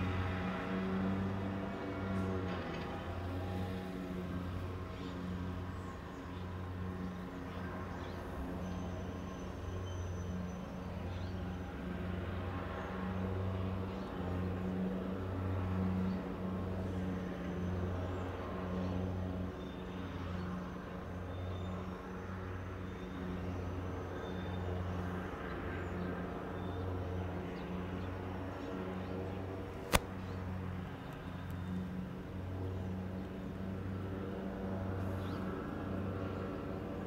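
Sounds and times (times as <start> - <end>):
sharp click: 29.8 - 30.1.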